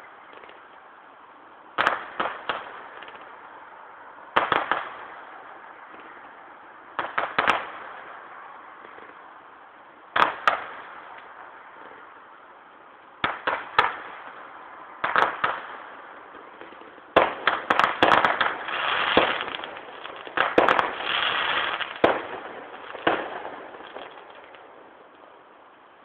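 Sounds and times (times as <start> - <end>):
firework crackle: 1.7 - 26.0
distant firework bangs: 15.0 - 24.7.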